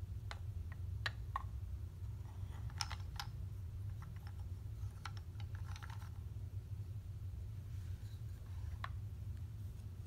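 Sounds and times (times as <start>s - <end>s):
low steady hum: 0.0s - 10.0s
wooden figures clicking: 0.2s - 1.6s, 2.2s - 6.3s.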